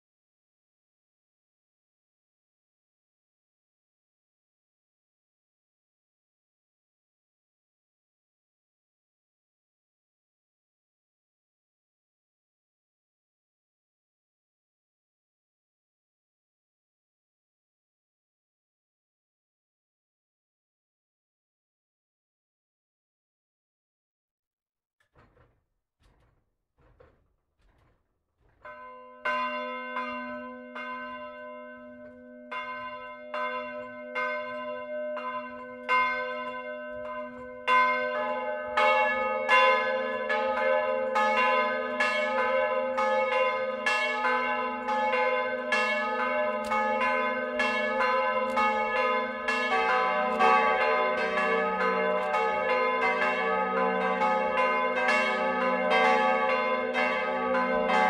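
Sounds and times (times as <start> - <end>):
church bells ringing: 28.6 - 58.0.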